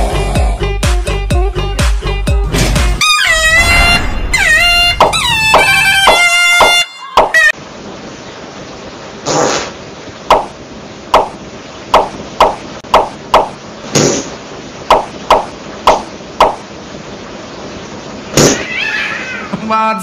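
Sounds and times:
short sharp sound effects: 2.6s - 6.7s
steady low hiss: 7.5s - 20.0s.

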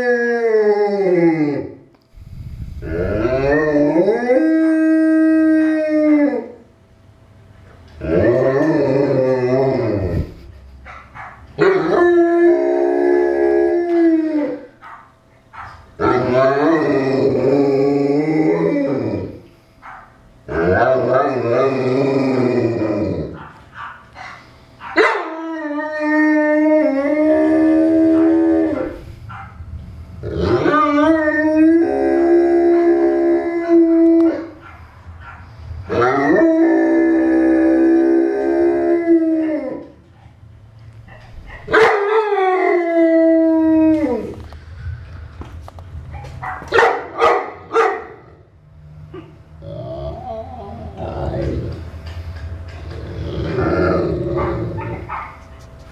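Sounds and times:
dog howling: 2.8s - 6.6s, 8.0s - 10.3s, 11.2s - 15.0s, 15.6s - 19.4s, 20.5s - 29.5s, 30.2s - 40.0s, 41.1s - 44.5s, 49.1s - 51.8s, 52.9s - 55.6s.

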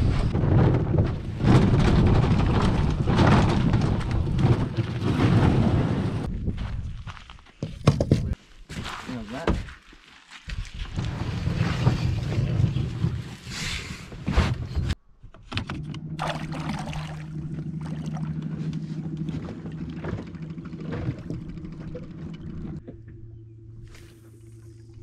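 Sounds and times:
outboard motor running: 15.6s - 25.0s.

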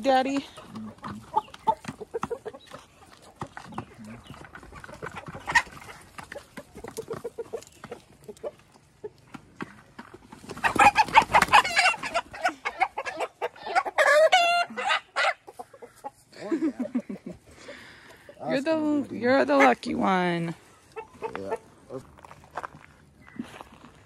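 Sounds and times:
chickens clucking: 0.0s - 24.0s
wings flapping: 10.4s - 12.1s
rooster squawking: 10.6s - 15.5s.

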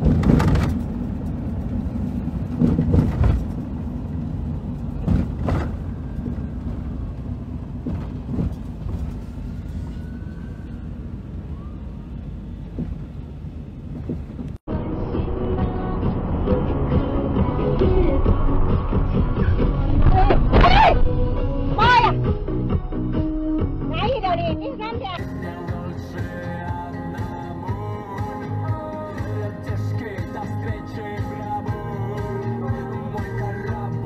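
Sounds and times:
car engine and tyre rumble: 0.0s - 34.0s.

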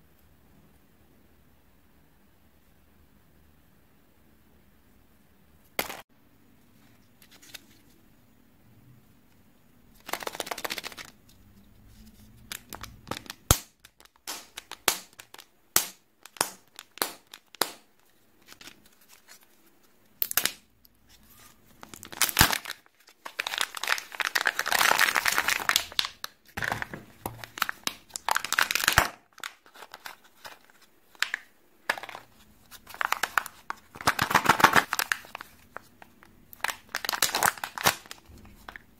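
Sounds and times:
plastic wrapper crinkling and tearing: 10.0s - 11.2s, 12.1s - 38.9s.

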